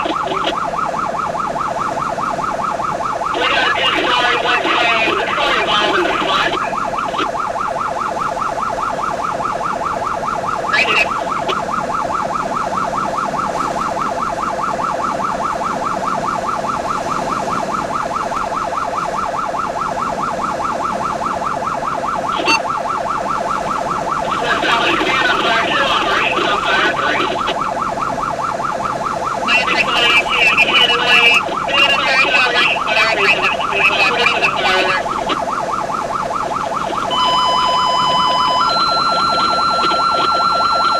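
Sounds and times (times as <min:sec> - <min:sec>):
warbling emergency siren: 0:00.0 - 0:40.9
higher warbling siren tone: 0:22.3 - 0:22.8, 0:29.4 - 0:40.9.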